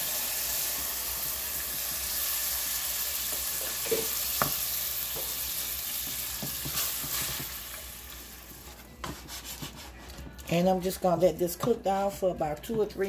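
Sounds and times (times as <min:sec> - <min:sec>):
vegetables sizzling in a pot: 0:00.0 - 0:09.7
wooden spoon knocking on pot: 0:06.0 - 0:07.5, 0:11.5 - 0:12.9.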